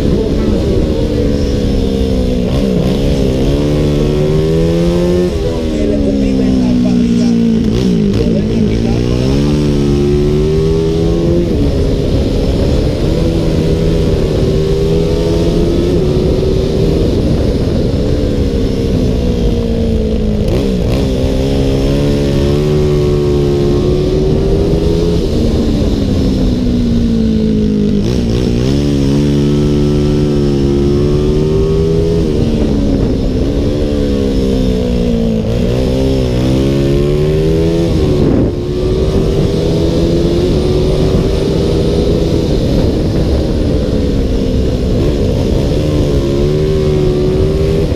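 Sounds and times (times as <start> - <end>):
motorcycle engine revving: 0.0 - 47.9
wind noise: 0.0 - 47.9.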